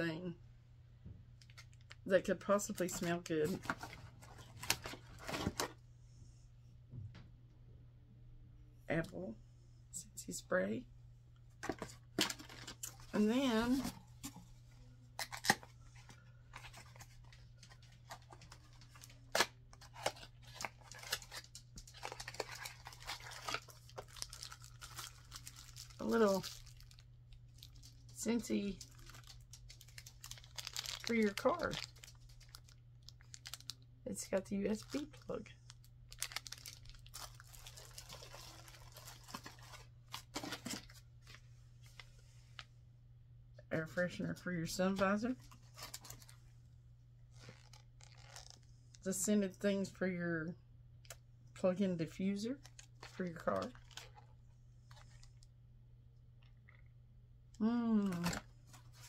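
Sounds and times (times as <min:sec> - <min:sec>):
plastic wrapping crinkling: 0:02.8 - 0:05.7, 0:15.2 - 0:28.2, 0:28.8 - 0:33.8, 0:34.7 - 0:42.0, 0:45.4 - 0:46.4, 0:47.3 - 0:48.7, 0:52.6 - 0:54.3.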